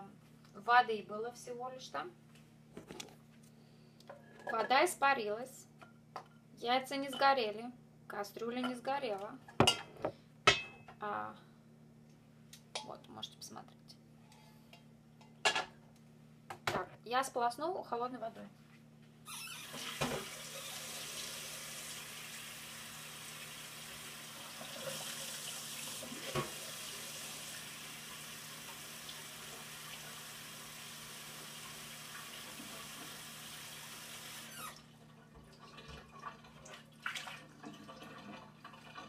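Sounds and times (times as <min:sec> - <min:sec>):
tap water splashing into sink: 0:19.7 - 0:20.4, 0:24.6 - 0:26.7.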